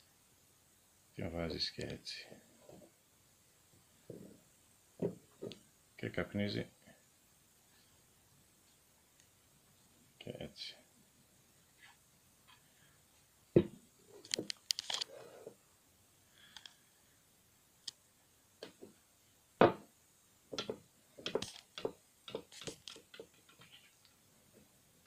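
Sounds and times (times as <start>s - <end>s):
wooden pipe knocking on tabletop: 13.6s - 13.8s, 19.6s - 19.9s, 20.5s - 23.7s.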